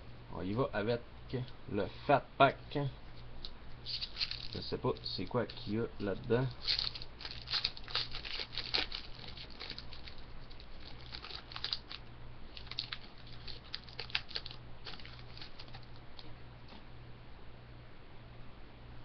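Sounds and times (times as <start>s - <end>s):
foil wrapper crinkling and tearing: 3.8s - 16.3s.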